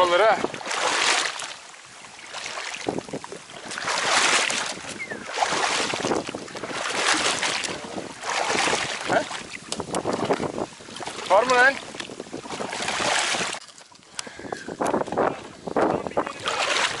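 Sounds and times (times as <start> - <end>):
person wading through water: 0.0 - 17.0
water sloshing and splashing: 0.0 - 17.0.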